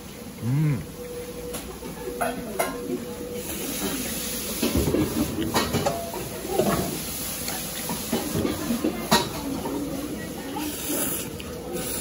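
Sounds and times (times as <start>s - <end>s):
tableware clatter: 4.7s - 7.0s.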